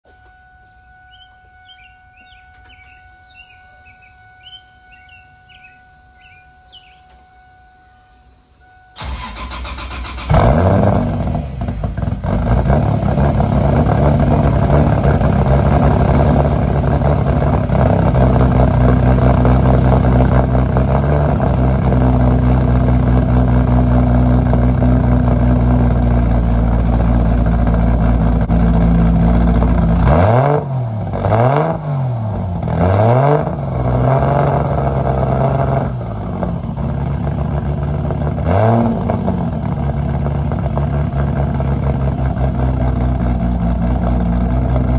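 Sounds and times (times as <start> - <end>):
engine fast idle: 9.0 - 30.0
engine revving: 9.0 - 44.9.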